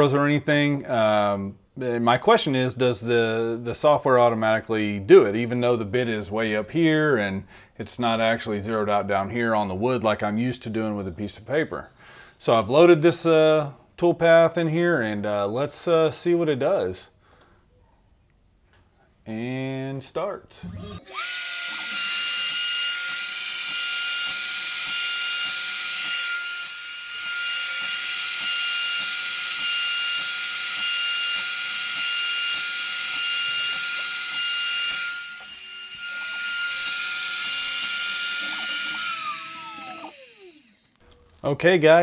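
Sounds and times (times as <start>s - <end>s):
router spindle whining: 20.6s - 41.5s.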